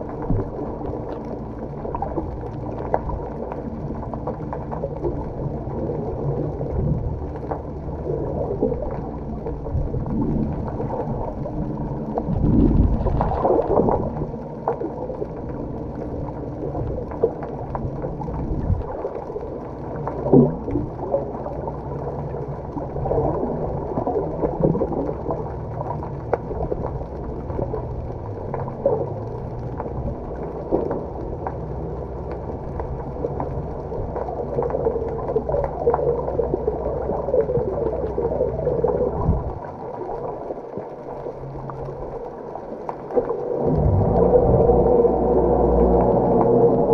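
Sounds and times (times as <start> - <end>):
boat engine droning: 43.3 - 46.9
loud low rumble: 43.4 - 46.9.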